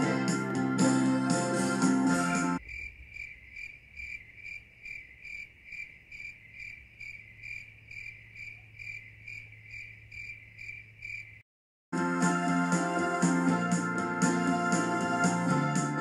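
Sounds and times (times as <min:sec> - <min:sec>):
organ music: 0:00.0 - 0:02.6, 0:12.0 - 0:16.0
crickets chirping: 0:02.6 - 0:11.4.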